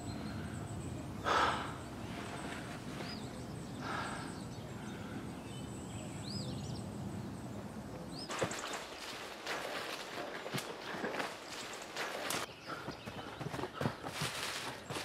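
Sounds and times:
twigs crackling underfoot: 8.3s - 12.5s, 13.8s - 15.0s.

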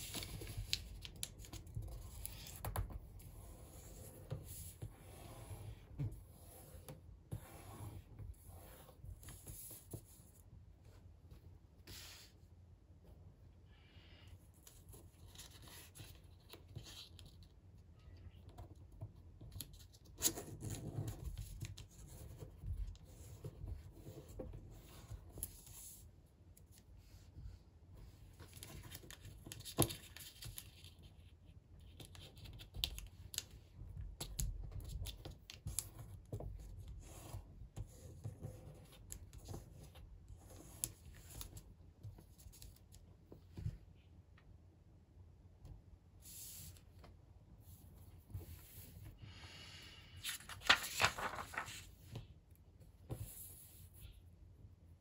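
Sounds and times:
paper rustling and sliding: 50.1s - 52.2s
sharp clicks of paper folding: 50.2s - 52.0s.

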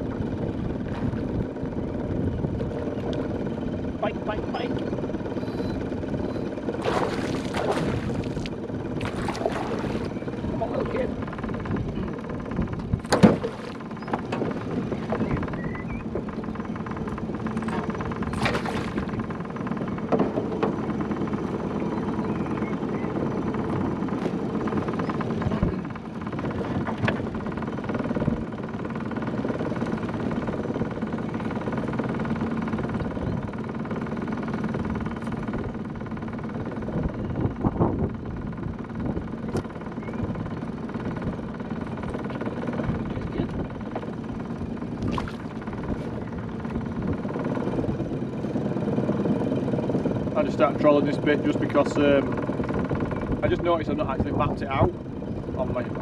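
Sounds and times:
outboard motor running: 0.0s - 56.0s
knocks on boat hull: 13.0s - 15.2s.

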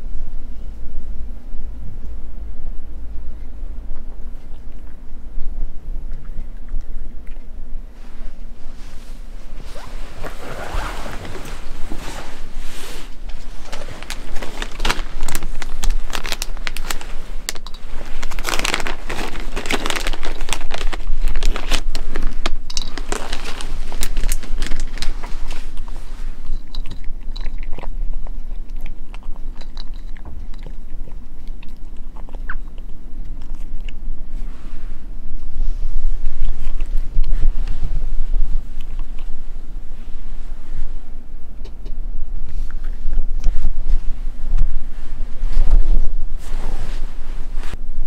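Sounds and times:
cat crunching dry kibble: 12.4s - 34.1s, 35.9s - 40.0s.

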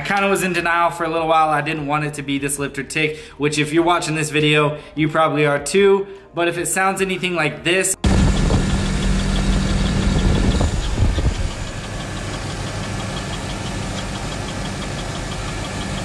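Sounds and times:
engine idling with rapid ticking: 8.0s - 16.0s.

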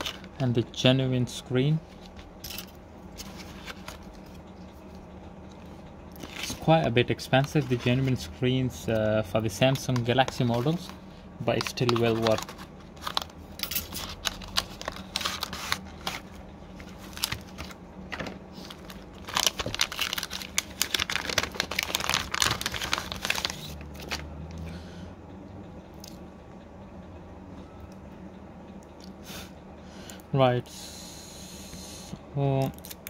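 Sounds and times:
plastic bag crinkling: 9.8s - 24.3s.

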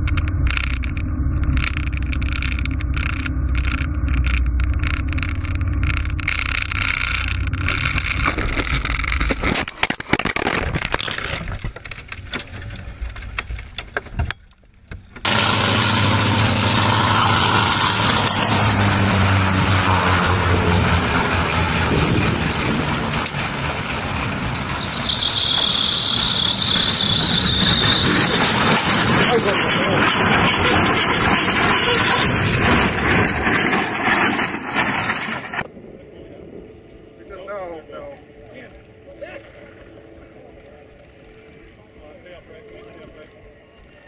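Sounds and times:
high whine: 0.0s - 44.0s
light aircraft engine droning: 12.1s - 44.0s
helicopter engine and rotor: 15.2s - 25.1s, 27.6s - 35.7s
knocks and rattles: 26.8s - 35.6s.

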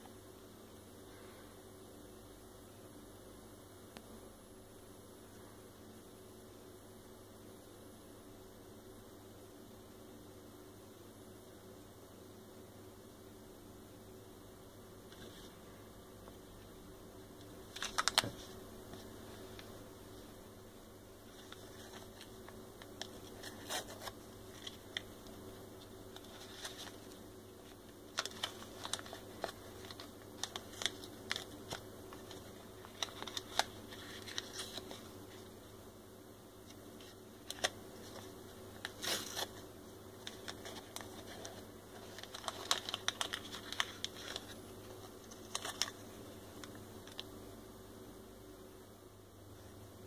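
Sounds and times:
faint steady hum: 0.0s - 50.0s
packaging crinkling: 17.6s - 19.7s, 21.3s - 35.4s, 37.0s - 47.3s.

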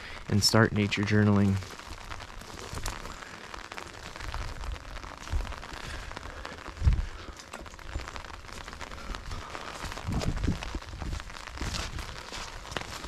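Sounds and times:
rain on an umbrella: 0.0s - 13.0s.

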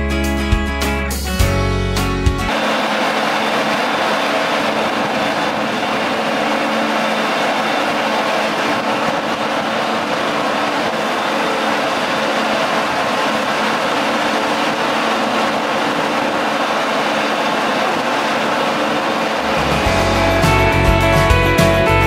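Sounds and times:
music: 0.0s - 2.5s, 19.5s - 22.0s
forage harvester machine noise: 2.4s - 22.0s.

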